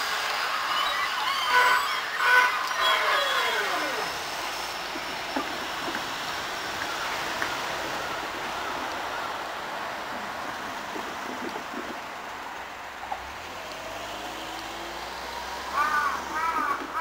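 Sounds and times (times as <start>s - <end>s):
electric train whine: 0.0s - 16.7s
train wheels rumbling on rail: 3.4s - 13.4s.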